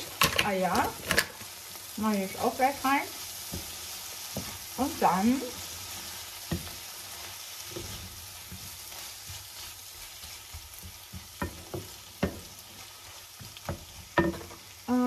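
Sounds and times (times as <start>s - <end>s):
food sizzling in a pan: 0.0s - 15.0s
wooden spoon knocking pan: 10.4s - 12.6s, 13.4s - 14.7s.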